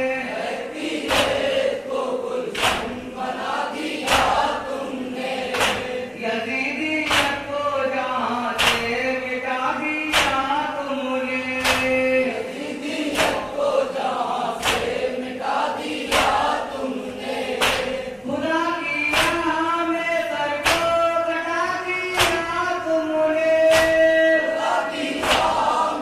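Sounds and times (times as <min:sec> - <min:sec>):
men chanting in unison: 0:00.0 - 0:26.0
hands slapping chests: 0:01.0 - 0:01.6, 0:02.5 - 0:03.0, 0:04.0 - 0:04.6, 0:05.5 - 0:05.9, 0:07.0 - 0:07.4, 0:08.6 - 0:08.9, 0:10.1 - 0:10.5, 0:11.6 - 0:12.0, 0:13.1 - 0:13.5, 0:14.6 - 0:15.0, 0:16.1 - 0:16.6, 0:17.6 - 0:18.0, 0:19.1 - 0:19.5, 0:20.6 - 0:20.9, 0:22.1 - 0:22.4, 0:23.7 - 0:24.1, 0:25.2 - 0:25.7.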